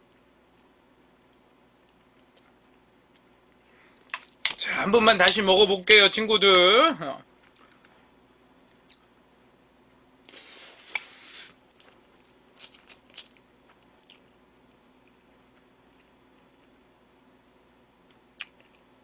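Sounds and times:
wet eating noise: 10.3s - 15.4s.

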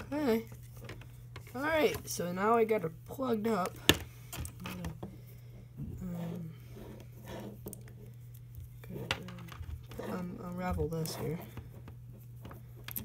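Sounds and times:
low steady hum: 0.0s - 13.0s
coiled cable clicks and rustling: 7.3s - 13.0s.

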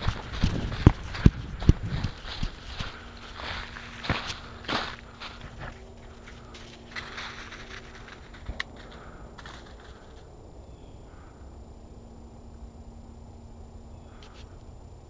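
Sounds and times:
footsteps crunching through dry leaves: 0.0s - 10.2s.

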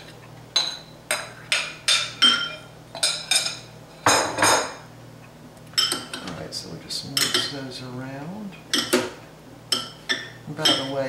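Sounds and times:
dishes clattering: 0.6s - 4.8s, 5.8s - 6.4s, 8.7s - 11.0s.

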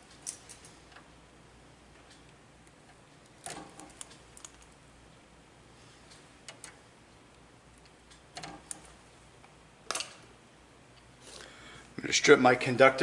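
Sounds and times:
handling clicks of wire and tool: 0.1s - 1.1s, 2.0s - 4.8s, 9.9s - 10.3s
wire strippers clicking and snipping: 0.1s - 1.1s, 2.0s - 4.8s, 6.1s - 9.0s.

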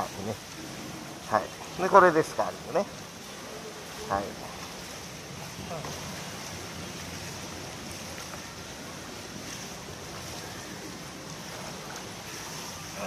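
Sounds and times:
pool water splashing: 0.0s - 13.0s.

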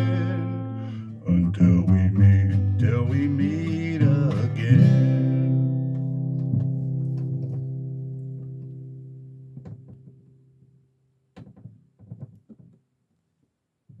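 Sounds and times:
acoustic guitar chord ringing: 0.0s - 9.6s
soft knocks and rustles: 6.0s - 8.8s, 9.5s - 10.2s, 11.4s - 12.9s.

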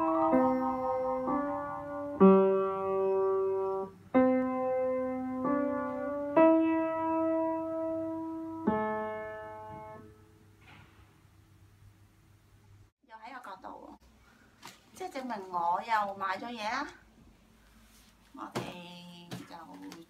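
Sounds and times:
slow piano-like keyboard chords: 0.0s - 10.5s.

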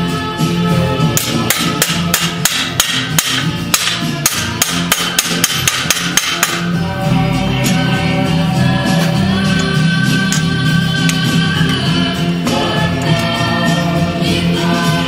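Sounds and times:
background music: 0.0s - 15.0s
rapid sharp hammer-like knocks: 1.2s - 6.8s.

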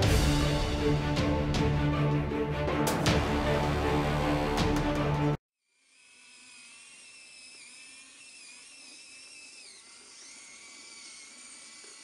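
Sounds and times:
high-pitched servo motor whine: 5.6s - 12.0s.

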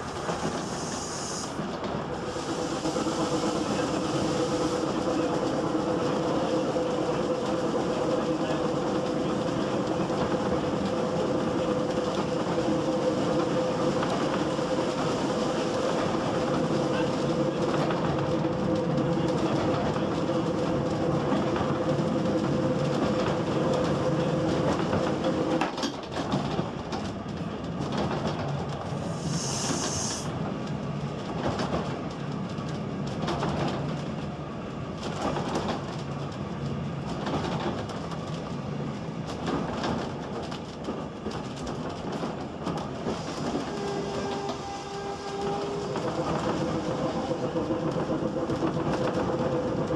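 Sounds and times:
rattling and knocks in carriage: 17.4s - 28.9s, 31.2s - 34.3s, 35.0s - 38.5s, 39.2s - 44.6s
short hiss: 29.1s - 30.3s.

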